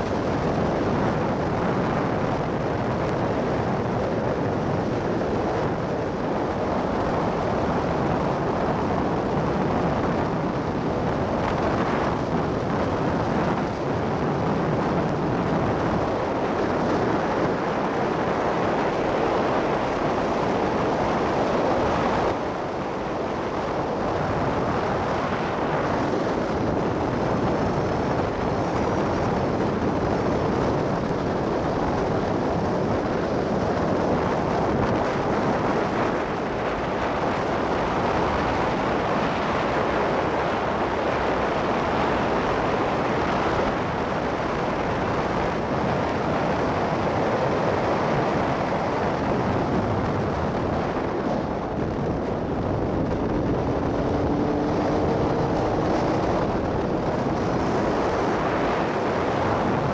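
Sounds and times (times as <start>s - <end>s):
road noise: 0.0s - 59.9s
wind rushing over microphone: 0.0s - 59.9s
motorcycle engine: 53.0s - 58.0s.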